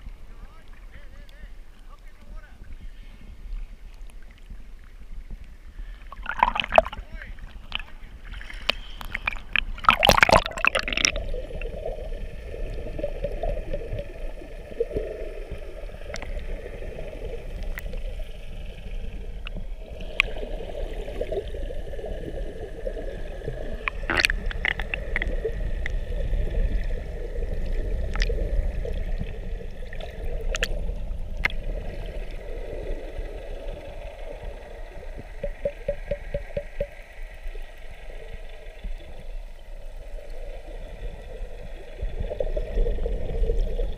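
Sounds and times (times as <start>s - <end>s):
underwater low rumble: 0.0s - 43.9s
sea water splashing: 1.8s - 43.9s
sharp underwater clicks: 6.1s - 7.0s, 8.6s - 11.2s, 23.8s - 26.0s, 28.1s - 28.4s, 30.0s - 30.8s, 31.4s - 31.6s, 35.4s - 37.0s.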